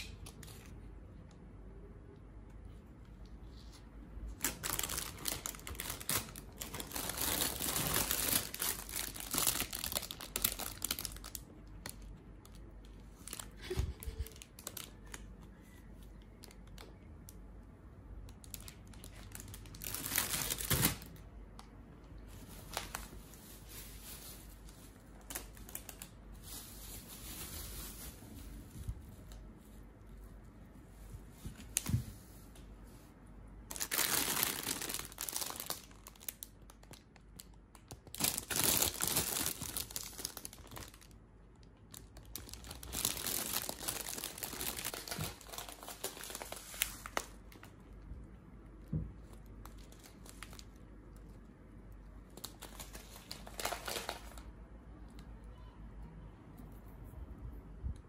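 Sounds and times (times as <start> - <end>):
plastic bags crinkling: 4.4 - 15.5, 18.3 - 21.3, 22.1 - 29.5, 33.7 - 48.0, 49.2 - 51.4, 52.3 - 54.5.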